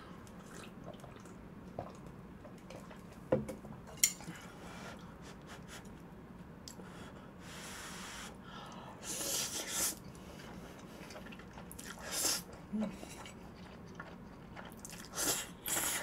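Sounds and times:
person eating noodles: 9.0 - 16.0.

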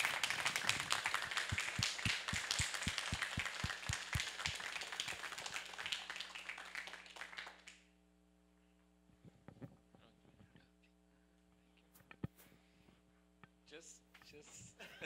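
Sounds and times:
audience applauding: 0.0 - 7.8
person clapping close by: 0.0 - 7.8
faint steady hum: 0.0 - 15.0.

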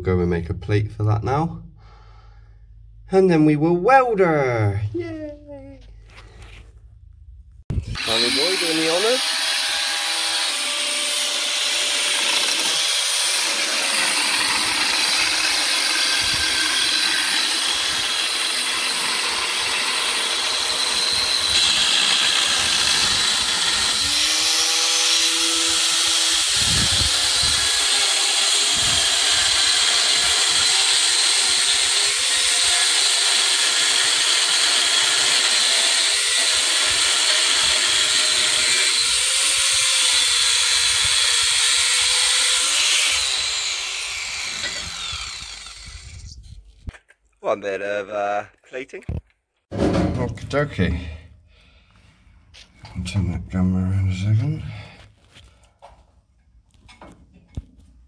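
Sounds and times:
angle grinder cutting steel: 7.8 - 46.3.

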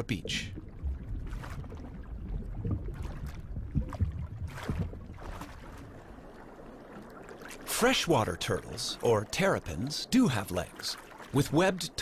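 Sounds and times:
underwater low rumble: 0.0 - 9.0
water swishes: 0.0 - 12.0.

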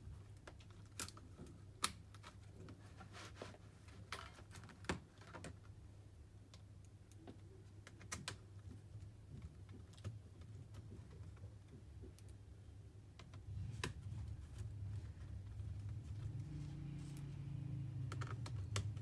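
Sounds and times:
screwdriver clicks and taps on laptop parts: 18.0 - 19.0.

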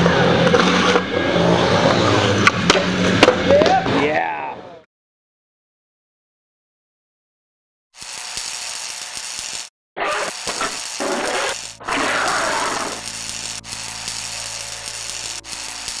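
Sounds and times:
electric buzzing and crackling: 8.0 - 16.0.

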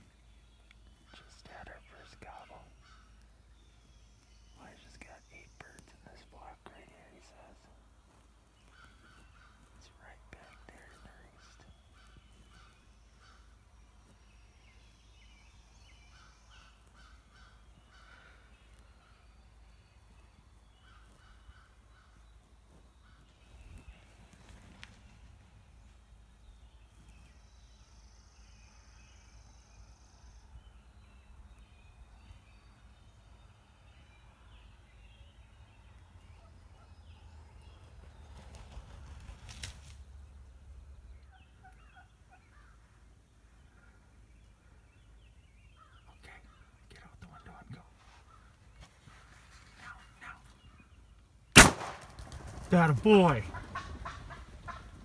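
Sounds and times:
high songbird chirps: 0.0 - 51.6
distant bird calls: 0.0 - 55.0
distant turkey gobbling: 41.2 - 42.8, 52.8 - 55.0.

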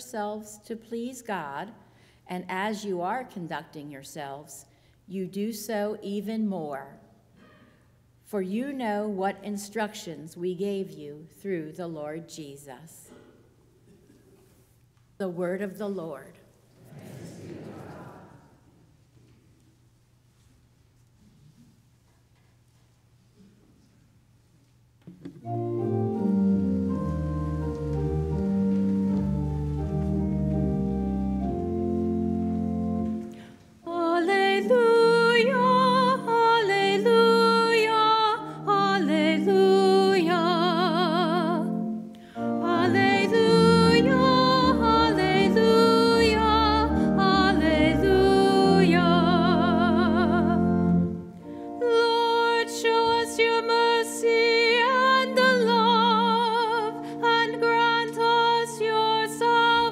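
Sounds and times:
church organ chords: 25.4 - 54.0
solo singer with vibrato: 33.8 - 41.8, 42.4 - 51.0, 51.8 - 59.9.

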